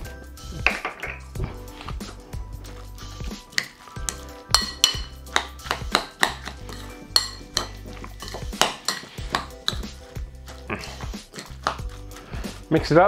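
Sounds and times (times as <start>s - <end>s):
background music: 0.0s - 13.0s
spoon scraping glass bowl: 3.5s - 11.8s.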